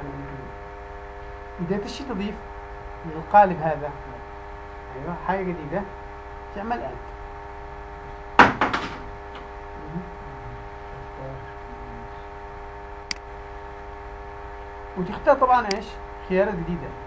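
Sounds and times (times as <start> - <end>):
electrical mains hum: 0.0 - 17.0
knocks: 8.4 - 9.5.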